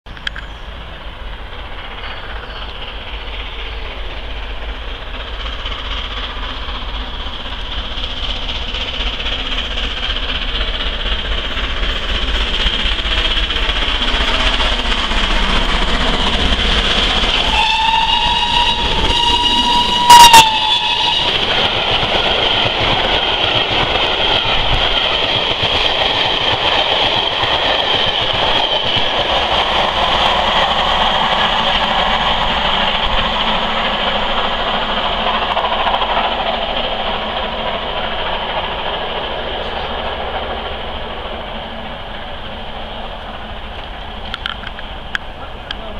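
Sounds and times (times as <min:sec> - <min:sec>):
steam locomotive running: 0:00.1 - 0:45.9
steam whistle: 0:17.4 - 0:21.5.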